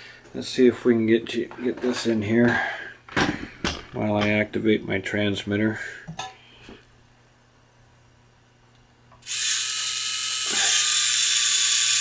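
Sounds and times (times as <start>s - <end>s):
servo motors whirring: 9.3s - 12.0s.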